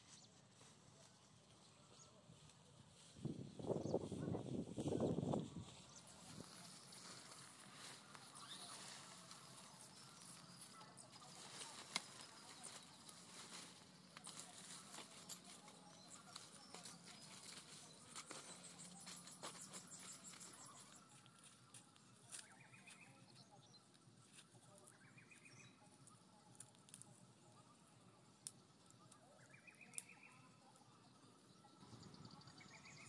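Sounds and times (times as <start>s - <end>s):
faint clicks and rustling: 6.0s - 23.1s.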